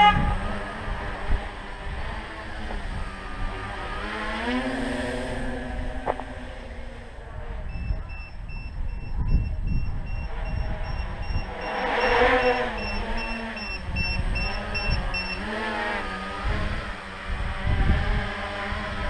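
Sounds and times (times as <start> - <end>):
drone propellers whirring: 0.0 - 19.0
wind buffeting microphone: 0.0 - 19.0
short high beeps: 7.7 - 15.5.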